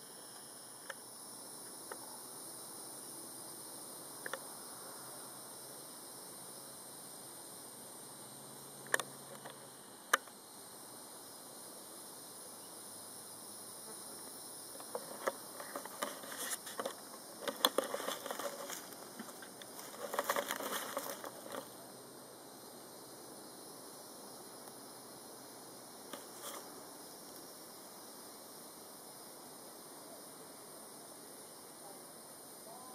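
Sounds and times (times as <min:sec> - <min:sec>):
faint steady hiss: 0:00.0 - 0:32.9
crackling handling noise: 0:14.7 - 0:21.8, 0:26.1 - 0:26.8.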